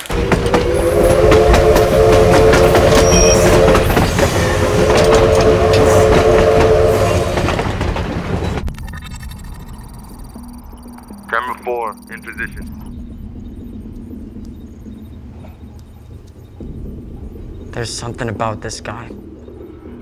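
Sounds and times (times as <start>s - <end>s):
train horn blasts: 0.0s - 7.8s
train wheels rumbling and clattering: 0.0s - 8.8s, 12.3s - 20.0s.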